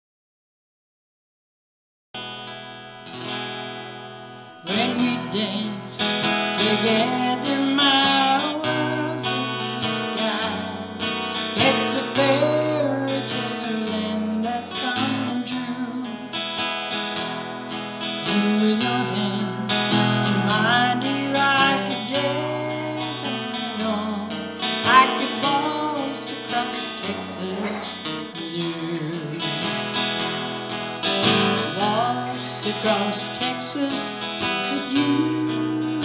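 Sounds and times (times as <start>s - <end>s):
acoustic guitar strumming: 2.2s - 36.0s
woman singing: 4.6s - 16.4s, 18.2s - 30.0s, 31.2s - 36.0s.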